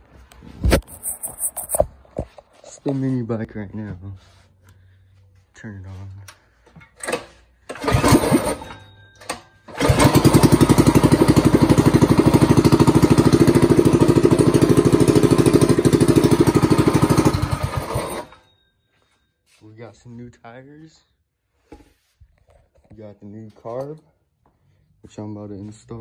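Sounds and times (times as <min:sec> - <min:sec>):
small engine pull-started: 0:07.0 - 0:18.5.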